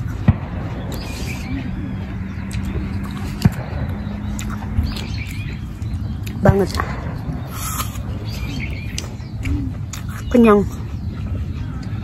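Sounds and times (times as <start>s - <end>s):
sharp crunching clicks: 0.0s - 10.3s
steady low rumble: 0.0s - 12.0s
apple being chewed: 4.4s - 6.4s, 7.5s - 10.8s.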